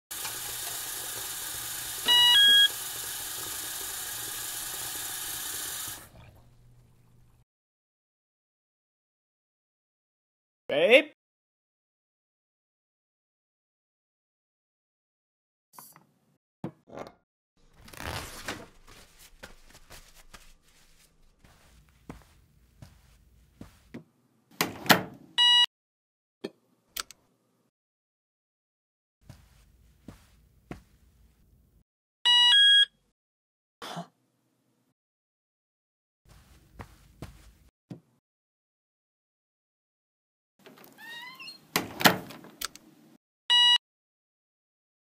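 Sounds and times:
paper towel tearing and rustling: 17.6s - 21.5s
footsteps: 18.2s - 24.0s, 29.3s - 31.2s, 36.3s - 37.7s.

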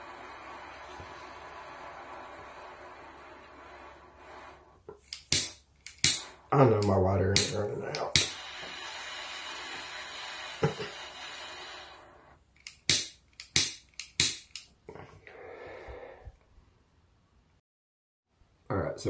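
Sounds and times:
torch lighter jet hissing: 0.0s - 12.4s.

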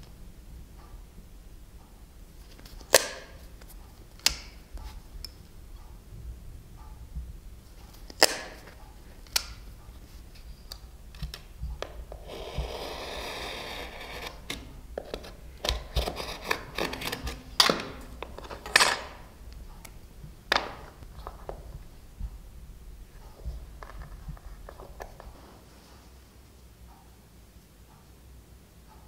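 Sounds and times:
knife scraping leather: 12.2s - 14.5s.

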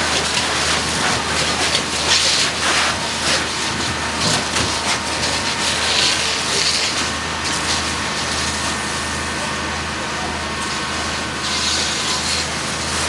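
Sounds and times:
hiss of water jets and steam: 11.4s - 13.0s.

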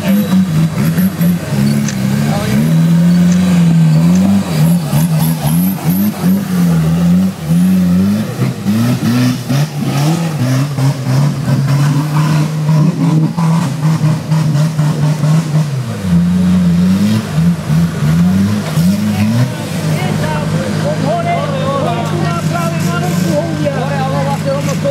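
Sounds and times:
engine revving hard: 0.0s - 24.9s.

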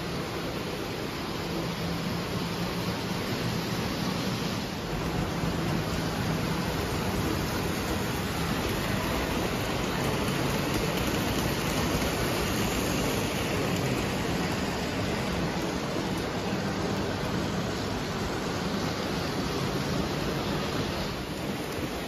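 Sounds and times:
toy trains running on track: 0.0s - 22.0s.

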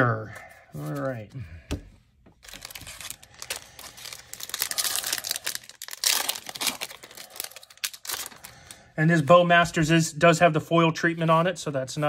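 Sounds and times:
foil wrapper crinkling: 2.4s - 8.8s.

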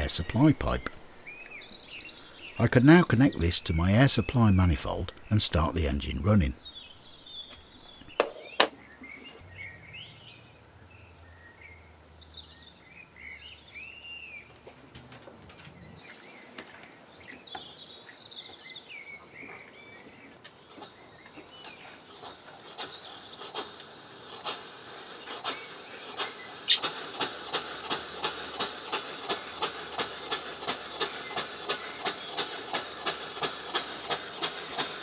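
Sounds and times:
birds chirping faintly: 0.0s - 14.8s, 15.6s - 35.0s
model steam engine hissing and clicking: 20.6s - 35.0s.

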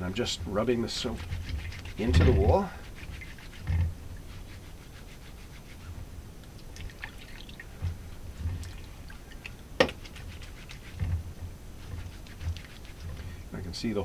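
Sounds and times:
soft thumps: 3.6s - 4.2s, 7.7s - 9.2s, 10.9s - 13.4s
water splashing and dripping: 6.5s - 11.2s.

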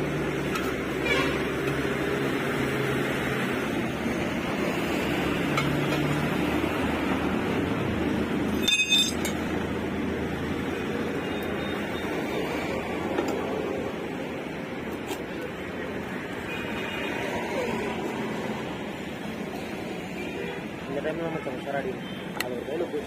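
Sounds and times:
steady background noise: 0.0s - 23.0s
metallic clink: 8.5s - 9.4s
tyre tools handling wheel: 8.5s - 9.5s.

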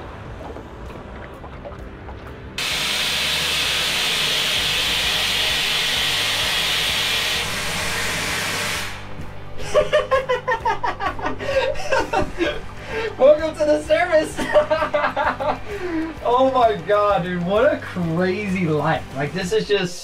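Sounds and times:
compressed gas hissing from valve: 2.6s - 9.3s.

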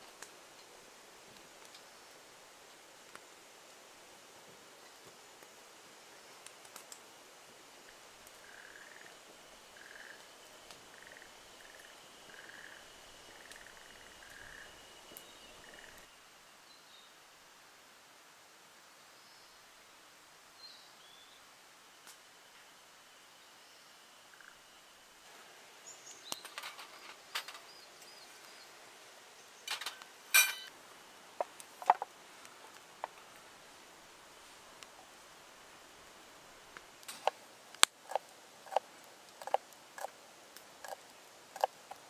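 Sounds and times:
wood fire crackle: 0.0s - 16.1s, 29.6s - 42.0s
frogs trilling: 7.8s - 16.1s, 24.3s - 24.7s
camp cooking gear clicks and knocks: 26.4s - 27.7s, 29.7s - 30.7s, 31.4s - 32.1s
metal clink ringing: 30.3s - 30.7s.

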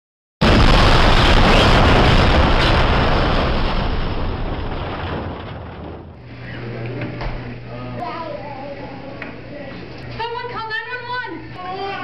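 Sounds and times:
explosion rumble: 0.4s - 6.4s
low room hum: 1.1s - 12.0s.

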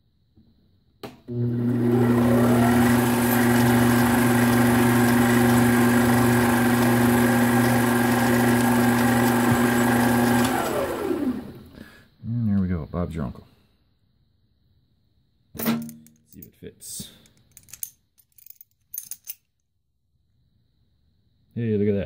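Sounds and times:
lathe motor whining: 1.3s - 11.7s
lathe tool cutting plastic: 1.4s - 11.6s.

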